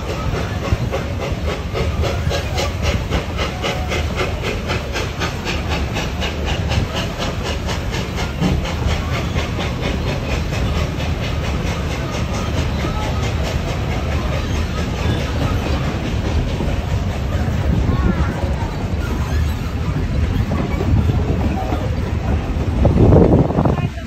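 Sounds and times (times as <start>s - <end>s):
low rumble of train: 0.0s - 24.0s
steam locomotive chuffing: 0.0s - 24.0s.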